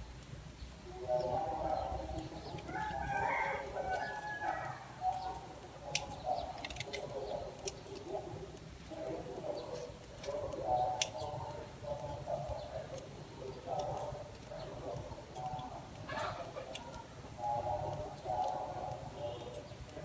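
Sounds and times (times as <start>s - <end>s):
rooster crowing: 1.2s - 5.0s
pruning shears snipping: 1.7s - 20.0s.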